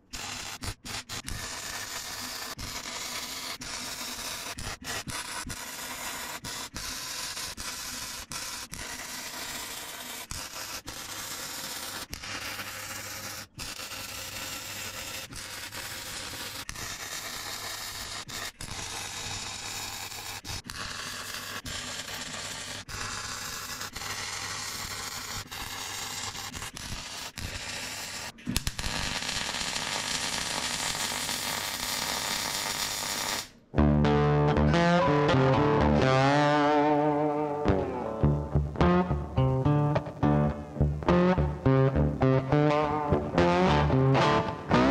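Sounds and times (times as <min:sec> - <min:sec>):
welding arc crackling hiss: 0:00.0 - 0:33.6
electric guitar music: 0:33.8 - 0:44.9.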